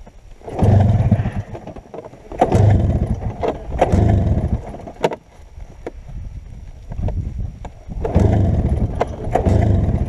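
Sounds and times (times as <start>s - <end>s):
snowmobile engine surging: 0.4s - 1.6s, 2.3s - 5.0s, 8.0s - 10.0s.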